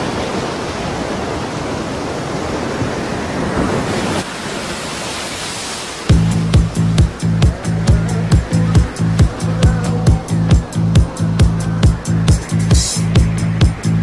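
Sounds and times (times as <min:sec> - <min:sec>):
ocean waves breaking: 0:00.0 - 0:14.0
electronic dance music: 0:06.1 - 0:14.0.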